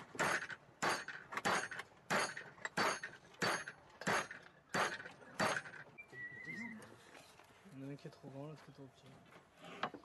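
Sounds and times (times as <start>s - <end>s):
hammer striking metal: 0.2s - 5.7s.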